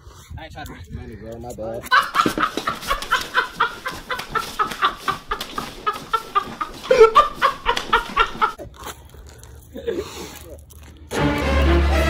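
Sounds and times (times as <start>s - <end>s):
man laughing hysterically: 1.9s - 8.6s.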